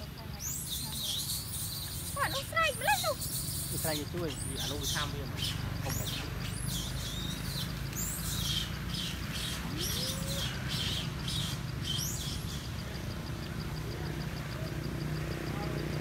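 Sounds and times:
birds chirping: 0:00.0 - 0:16.0
low rising bird call: 0:04.8 - 0:13.0.

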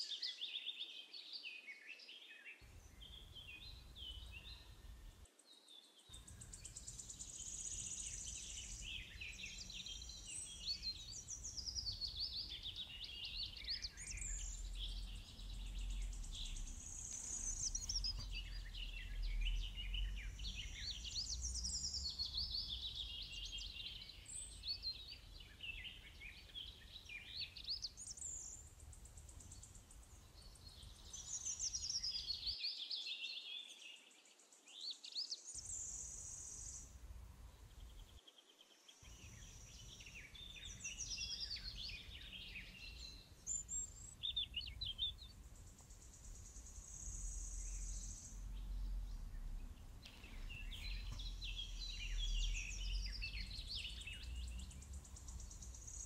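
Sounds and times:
songbirds singing and chirping: 0:00.0 - 0:56.0
faint low rumble: 0:12.4 - 0:24.6, 0:44.8 - 0:56.0.

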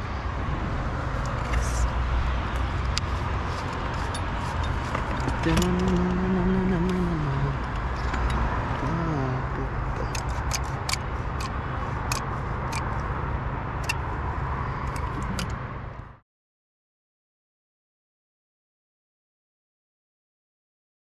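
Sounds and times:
city traffic rumble: 0:00.0 - 0:16.2.

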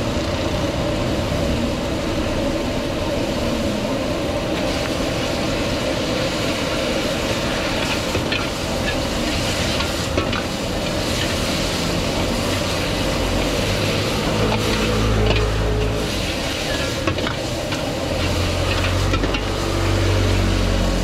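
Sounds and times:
gas burner roaring: 0:00.0 - 0:21.0
vegetables sizzling in a wok: 0:00.0 - 0:21.0
metal ladle scraping a wok: 0:07.7 - 0:17.4, 0:18.1 - 0:19.6.

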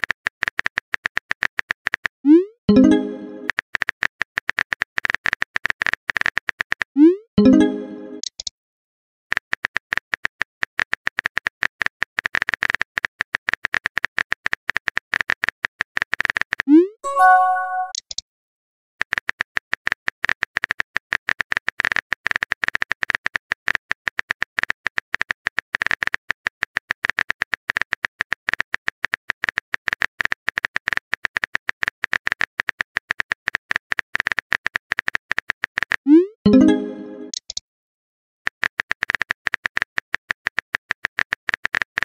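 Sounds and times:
pitched message tone: 0:02.7 - 0:03.5, 0:07.4 - 0:08.2, 0:17.0 - 0:18.0, 0:36.1 - 0:37.4.

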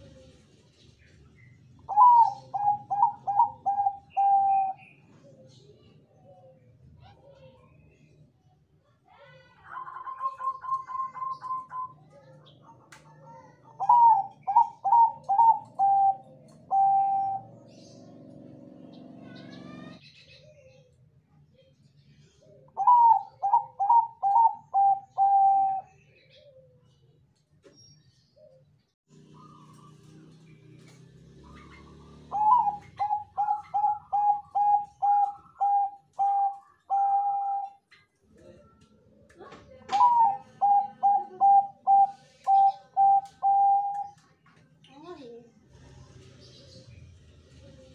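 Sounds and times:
dove cooing: 0:00.0 - 0:00.6, 0:01.8 - 0:06.6, 0:09.7 - 0:18.6, 0:22.4 - 0:27.0, 0:29.2 - 0:30.2, 0:30.8 - 0:38.8, 0:39.7 - 0:44.3.

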